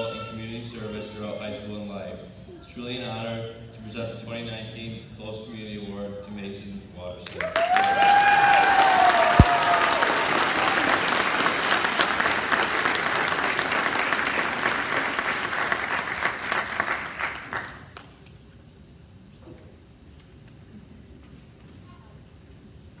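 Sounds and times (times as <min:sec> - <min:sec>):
audience applauding: 0:07.3 - 0:18.1.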